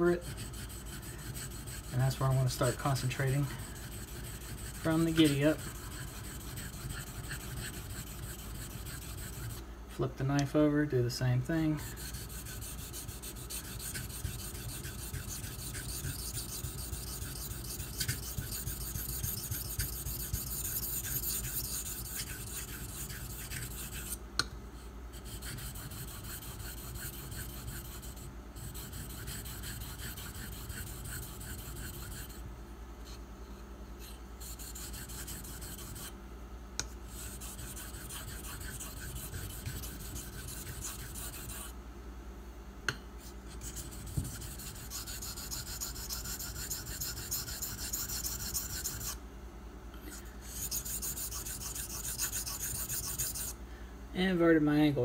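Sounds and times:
knife blade scraping on whetstone: 0.0 - 9.6, 11.8 - 24.2, 25.2 - 32.4, 37.1 - 41.7, 43.6 - 49.2, 50.5 - 53.5.

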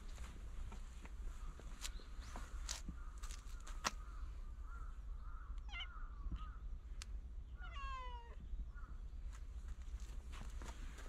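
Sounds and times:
cat meowing: 5.6 - 5.9, 7.6 - 8.4.

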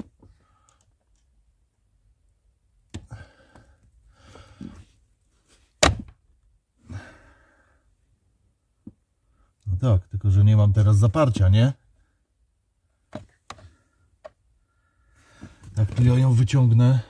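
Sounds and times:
man sighing: 3.0 - 4.8.

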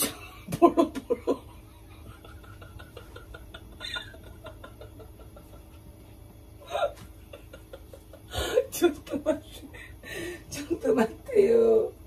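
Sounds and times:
woman laughing breathily: 0.0 - 10.6.

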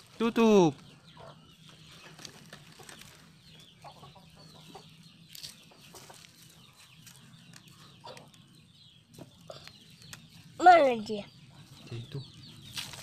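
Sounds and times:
chickens clucking: 0.8 - 10.5.

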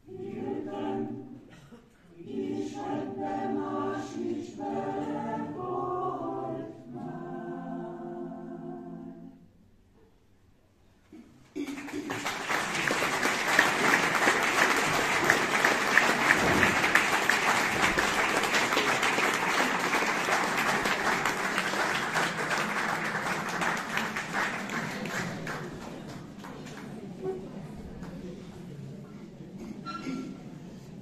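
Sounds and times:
audience applause: 11.6 - 27.1.

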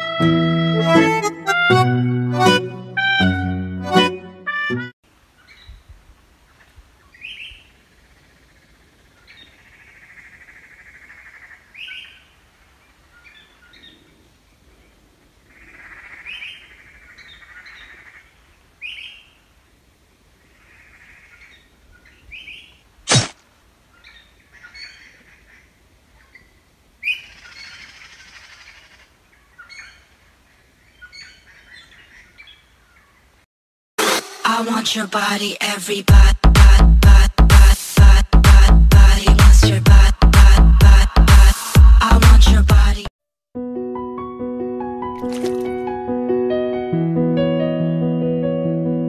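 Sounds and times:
songbirds chirping: 5.1 - 33.4
sharp click: 23.1 - 23.4.

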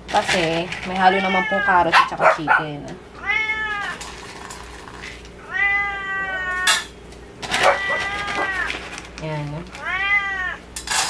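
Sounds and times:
cat meowing: 1.1 - 1.9, 3.2 - 4.0, 5.4 - 6.8, 7.6 - 8.8, 9.8 - 10.6.

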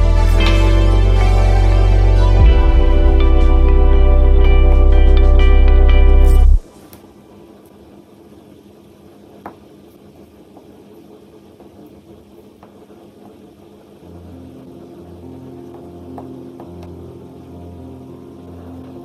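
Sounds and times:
low motor hum: 0.0 - 6.6.

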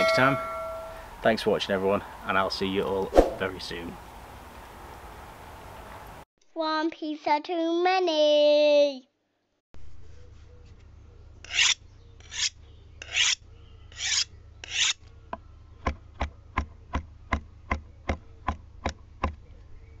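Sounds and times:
faint low hum: 9.8 - 20.0
rasping scrapes: 11.4 - 15.0.

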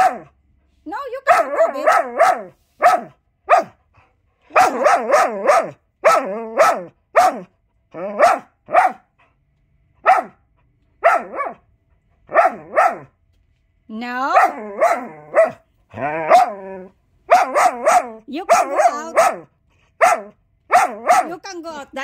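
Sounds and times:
dog barking: 0.0 - 0.4, 1.2 - 3.8, 4.5 - 9.1, 10.0 - 11.7, 12.3 - 13.2, 14.2 - 16.7, 17.3 - 21.4.

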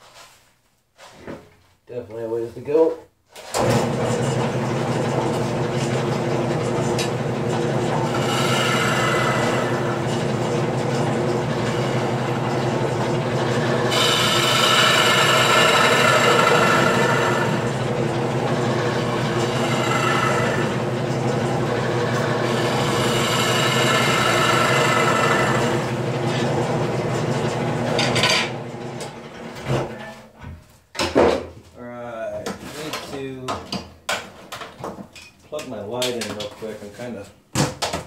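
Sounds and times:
gouge cutting wood on lathe: 3.6 - 29.1
wood lathe motor hum: 3.6 - 29.5.

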